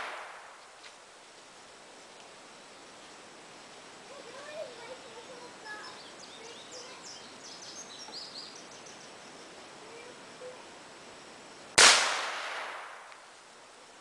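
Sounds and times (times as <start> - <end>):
faint bird chirps: 4.1 - 10.7
gunshot crack with echo: 11.8 - 13.2.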